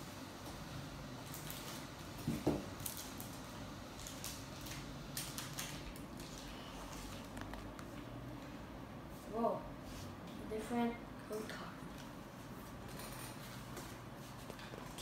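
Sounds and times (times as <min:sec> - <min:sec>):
foil wrapper crinkling: 0:02.7 - 0:07.8.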